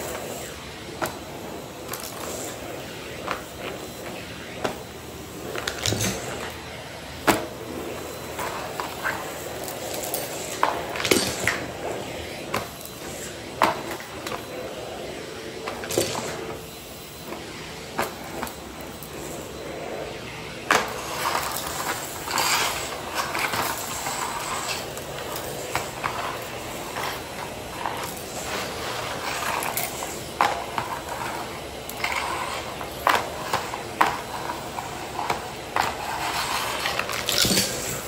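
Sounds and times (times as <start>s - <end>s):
vacuum cleaner running: 0.0s - 38.0s
debris rattling up vacuum wand: 5.5s - 6.6s, 7.2s - 14.5s, 20.7s - 38.0s.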